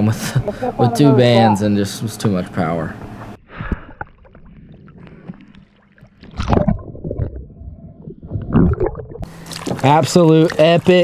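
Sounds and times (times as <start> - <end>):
water sloshing and gurgling: 2.9 - 11.0
small water splashes: 4.0 - 11.0.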